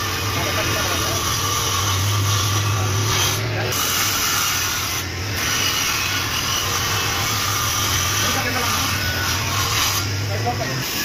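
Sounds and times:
table saw cutting wood: 0:00.0 - 0:11.0.

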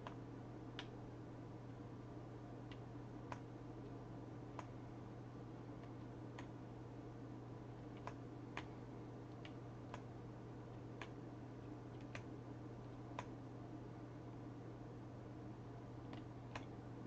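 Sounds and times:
steady low hum: 0:00.0 - 0:17.0
faint sharp clicks: 0:00.8 - 0:01.0, 0:02.6 - 0:04.0, 0:07.9 - 0:08.7.

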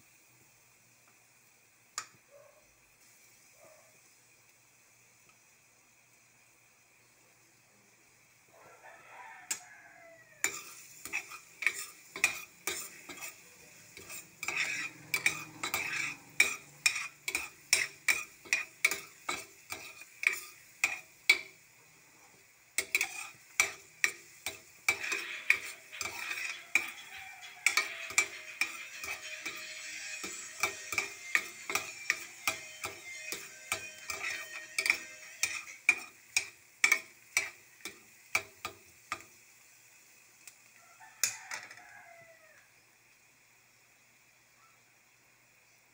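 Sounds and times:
garlic sizzling in oil: 0:00.0 - 0:44.5
metal spoon clinking against pan: 0:10.4 - 0:21.5, 0:22.8 - 0:39.3.

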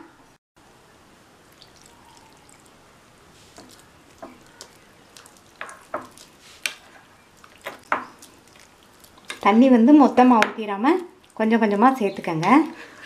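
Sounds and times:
water pouring into bowl: 0:01.5 - 0:02.8
metal spoon stirring batter: 0:03.4 - 0:13.0.

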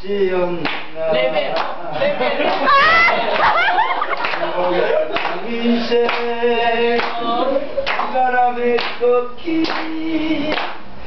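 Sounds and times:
group singing: 0:00.0 - 0:10.8
hands clapping on the beat: 0:00.6 - 0:00.9, 0:03.3 - 0:04.5, 0:05.1 - 0:05.4, 0:06.0 - 0:07.2, 0:07.8 - 0:10.8.

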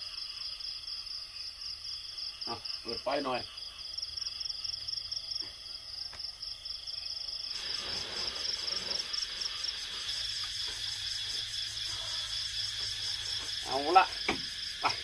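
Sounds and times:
insects trilling: 0:00.0 - 0:15.0
rustling noise: 0:07.5 - 0:13.6.

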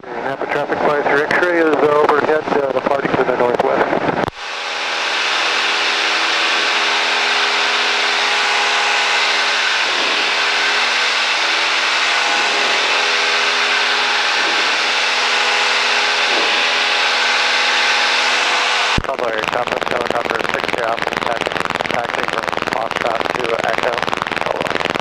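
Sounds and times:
airplane engine drone: 0:00.0 - 0:25.0
rushing air noise: 0:03.9 - 0:19.1.

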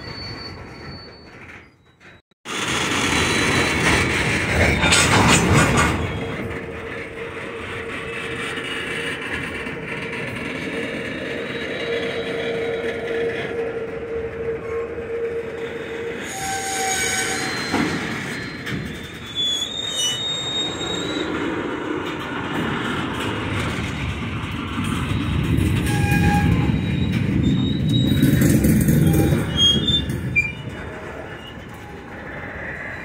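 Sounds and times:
high wheel squeals: 0:00.0 - 0:02.2, 0:11.1 - 0:13.5, 0:14.6 - 0:21.4, 0:25.8 - 0:33.0
train wheels rumbling on rails: 0:00.0 - 0:33.0.

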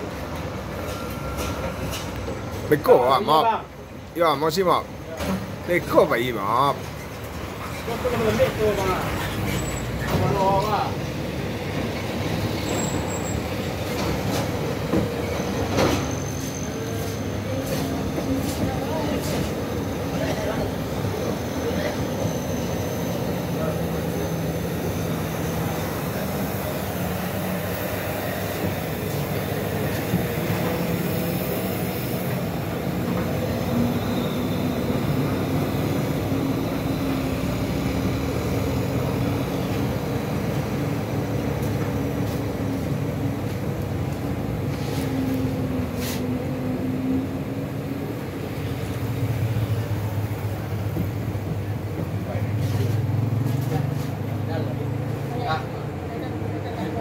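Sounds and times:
heavy diesel truck engine droning: 0:00.0 - 0:57.0
other truck engines running: 0:00.0 - 0:57.0.

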